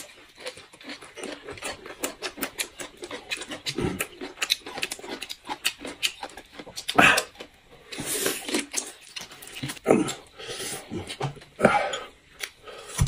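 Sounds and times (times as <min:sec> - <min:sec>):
person chewing and smacking: 0:00.0 - 0:13.0.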